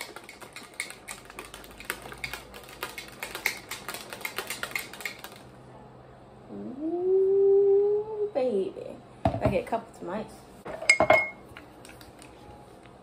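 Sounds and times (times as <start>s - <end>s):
plastic shaker bottle rattling: 0.0s - 5.5s.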